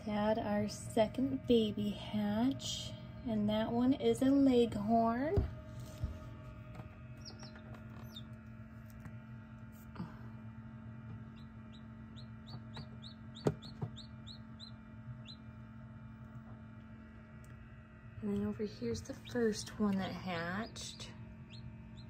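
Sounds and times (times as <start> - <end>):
incubator low hum: 0.0 - 22.0
chicks peeping: 7.1 - 9.0, 11.2 - 15.7, 20.6 - 22.0.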